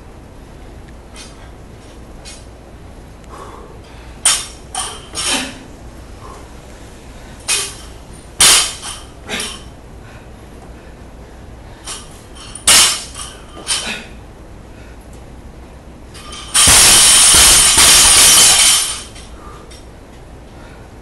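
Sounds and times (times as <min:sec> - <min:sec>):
barbell crashing onto platform: 0:08.4 - 0:09.0, 0:12.7 - 0:13.8, 0:16.2 - 0:19.1
barbell metal clanks: 0:11.9 - 0:13.9, 0:16.2 - 0:19.3.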